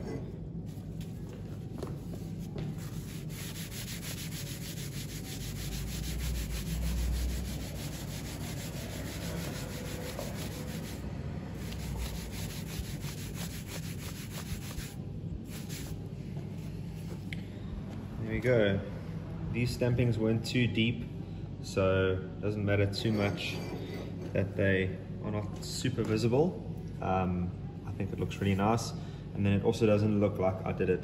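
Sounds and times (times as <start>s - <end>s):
paper towel rubbing on metal: 2.4s - 11.0s, 11.6s - 16.0s.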